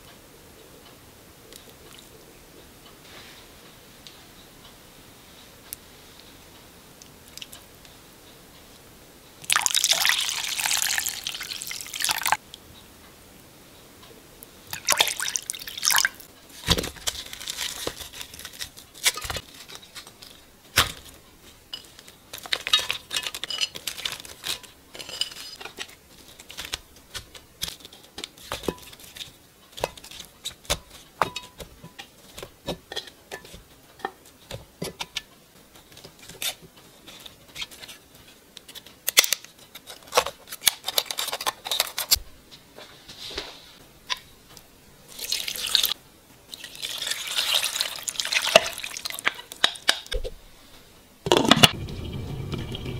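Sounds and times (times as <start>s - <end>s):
water pouring into a glass bowl: 9.5s - 12.4s, 14.8s - 16.2s, 46.5s - 49.2s.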